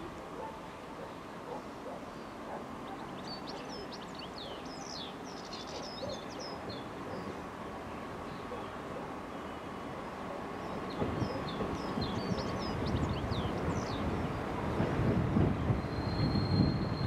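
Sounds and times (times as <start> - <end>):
songbird chirping and trilling: 2.0 - 14.8.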